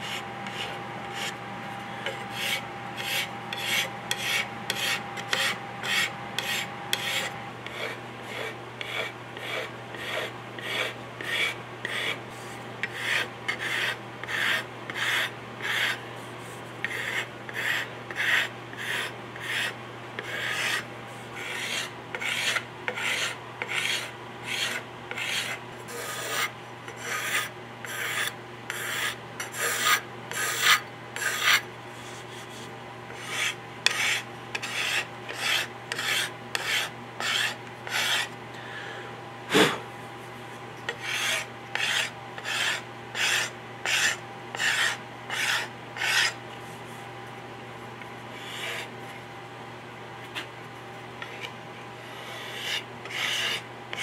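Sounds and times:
steel scraper shaving wood: 2.1 - 12.2, 12.8 - 16.0, 16.8 - 20.8, 21.4 - 31.6, 33.2 - 38.3, 40.9 - 46.4, 51.2 - 54.0.

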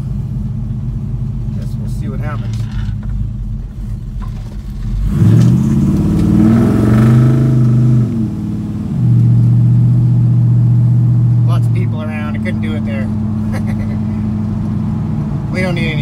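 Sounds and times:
car engine exhaust droning: 0.0 - 16.0.

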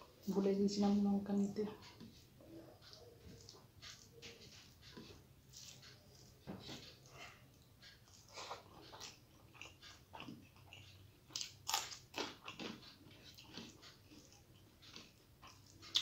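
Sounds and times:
chilli crunching: 2.9 - 16.0
mouth eating sounds: 7.0 - 16.0.

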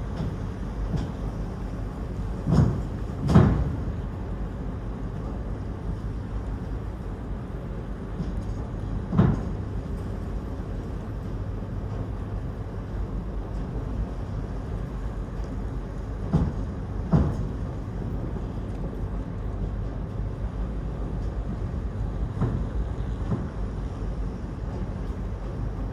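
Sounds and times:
ship engines rumbling: 0.0 - 25.9
heavy clunks: 16.2 - 17.6.

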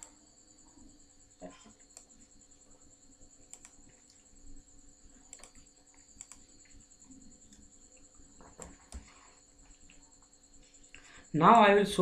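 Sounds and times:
computer mouse clicks: 0.0 - 0.2, 1.8 - 2.2, 3.4 - 4.3, 5.2 - 6.8, 7.4 - 9.2.

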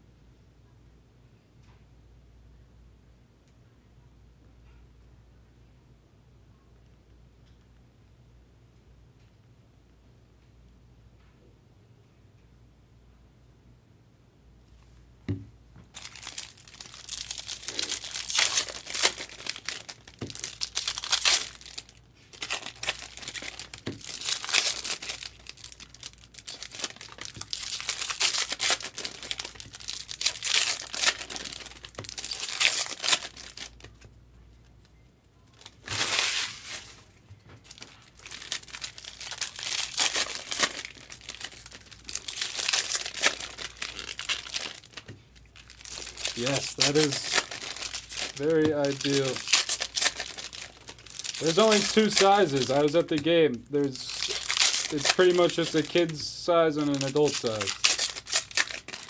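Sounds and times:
foil wrappers crinkling and tearing: 15.9 - 34.1, 35.6 - 59.0.

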